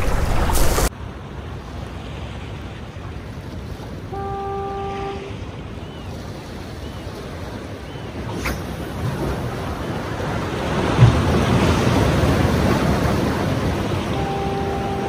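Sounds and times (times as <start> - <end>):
surf washing against rocks: 0.0 - 15.0
horn blast: 4.1 - 5.4, 14.0 - 15.0.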